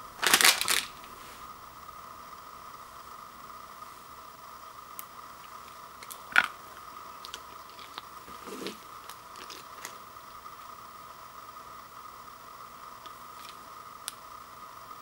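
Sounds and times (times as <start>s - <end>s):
plastic sachet crinkle: 0.2s - 1.2s, 7.2s - 10.4s.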